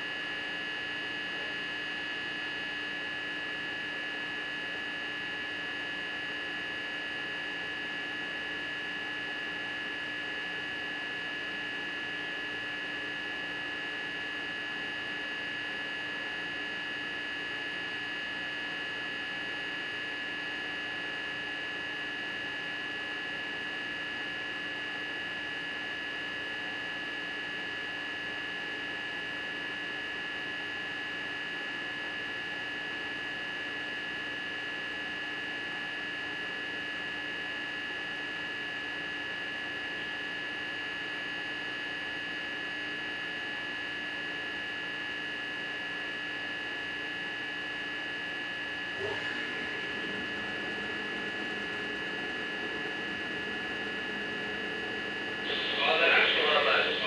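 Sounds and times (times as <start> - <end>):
steady hum: 47.0 - 57.0
high-pitched whine: 48.0 - 57.0.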